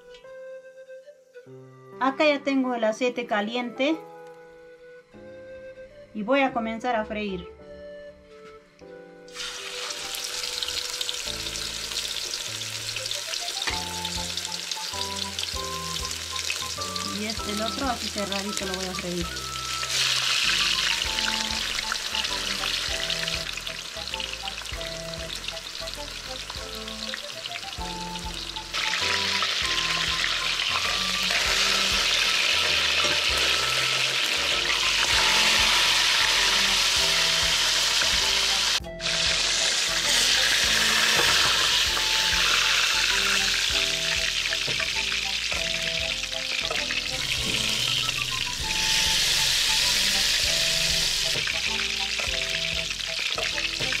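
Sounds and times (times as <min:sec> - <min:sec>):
soft instrumental music: 0:00.0 - 0:54.0
fish sizzling in hot oil: 0:09.3 - 0:54.0.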